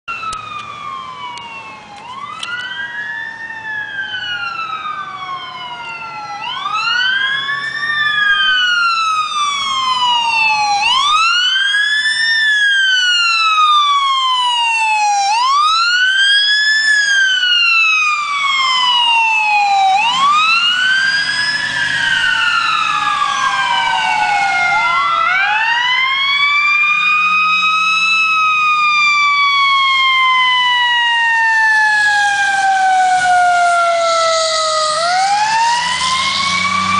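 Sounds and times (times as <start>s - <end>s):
emergency sirens wailing: 0.1s - 36.9s.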